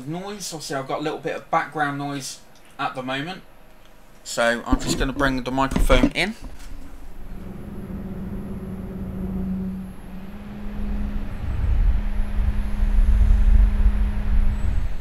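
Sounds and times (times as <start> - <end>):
computer fan humming: 1.1 - 15.0
deep rumble: 6.8 - 15.0.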